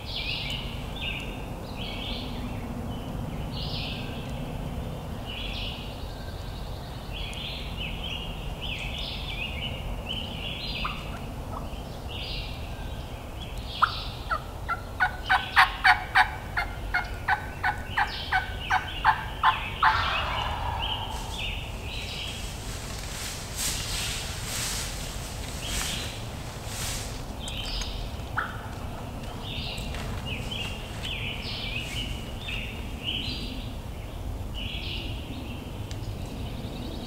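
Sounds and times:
songbird calling: 5.3 - 22.8, 27.0 - 37.0
turkey yelps: 14.7 - 21.4.

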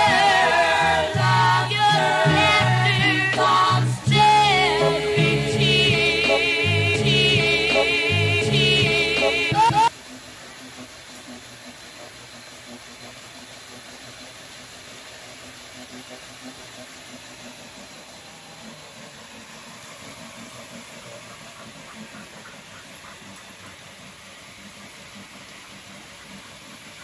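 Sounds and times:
hip-hop song: 0.0 - 9.9
treadmill rumble and hiss: 0.0 - 27.0.

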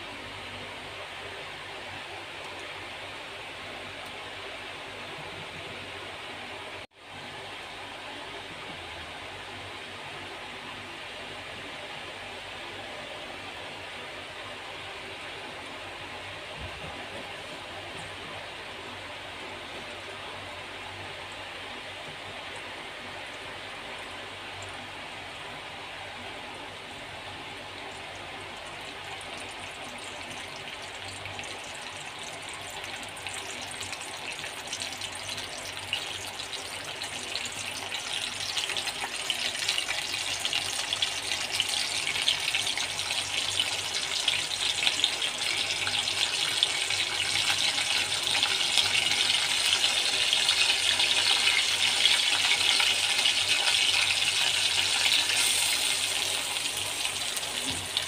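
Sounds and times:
oil sizzling and crackling in a wok: 27.0 - 58.0.

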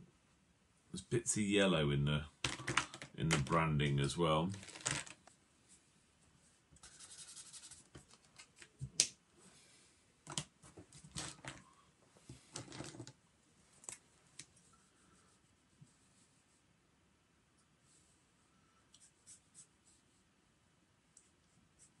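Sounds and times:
marker scratching on paper: 6.8 - 8.0.

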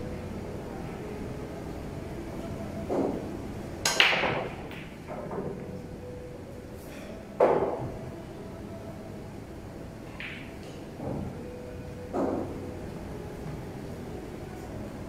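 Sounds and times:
pool balls clacking: 2.8 - 5.8, 7.4 - 8.0, 10.1 - 12.7
cue ball cracking into pool balls: 3.8 - 5.6.

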